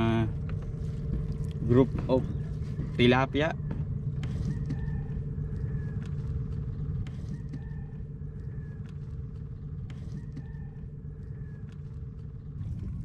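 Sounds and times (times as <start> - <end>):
low rumble: 0.0 - 13.0
steady hum: 0.0 - 13.0
roosters crowing: 4.2 - 11.9.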